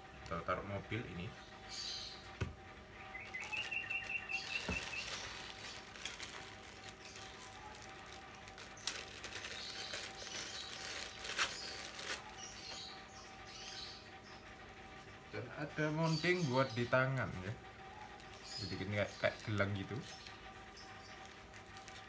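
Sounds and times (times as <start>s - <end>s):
bird chirping: 0.4s - 14.6s, 15.8s - 22.0s
plastic bags rustling and crinkling: 3.1s - 12.9s, 17.3s - 22.0s.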